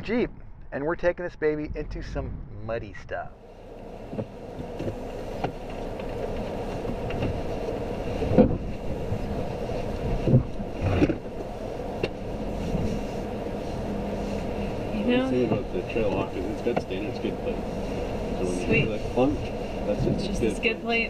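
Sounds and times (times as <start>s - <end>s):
engine and tyres rumbling: 0.0s - 21.0s
vehicle knocks and thumps: 4.0s - 13.0s, 16.5s - 17.3s, 18.8s - 20.4s.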